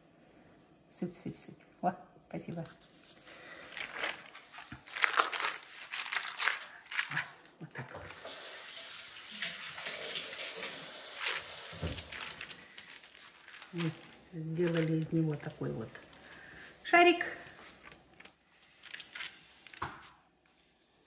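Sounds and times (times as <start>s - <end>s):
dough swishing over paper: 0.0s - 4.9s, 9.4s - 16.8s
parchment paper rustling: 2.4s - 8.5s, 9.4s - 20.3s.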